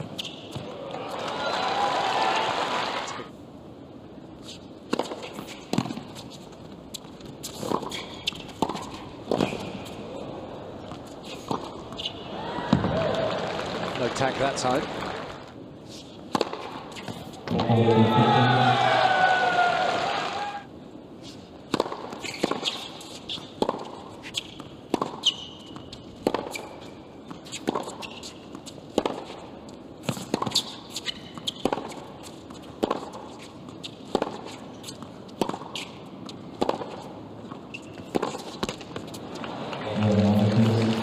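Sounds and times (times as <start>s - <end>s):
shoe squeaks: 11.2s - 12.2s, 22.2s - 23.5s, 25.2s - 28.5s, 30.5s - 32.6s, 35.7s - 36.4s, 37.7s - 39.2s
tennis ball hits: 16.3s - 17.8s, 21.7s - 23.0s, 23.6s - 26.6s, 28.9s - 29.4s, 32.6s - 33.2s, 36.6s - 37.1s.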